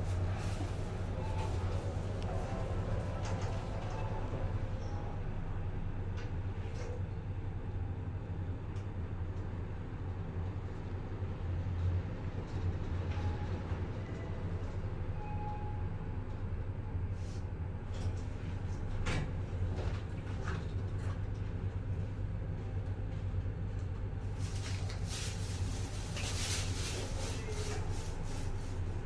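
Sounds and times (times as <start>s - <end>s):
lift low hum: 0.0s - 19.7s
rustling and clatter: 23.8s - 29.0s.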